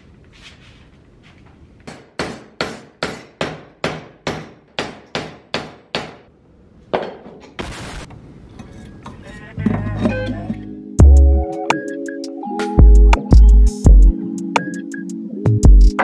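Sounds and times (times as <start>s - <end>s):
hammer striking steel: 1.8s - 6.3s
burst of noise: 7.6s - 8.1s.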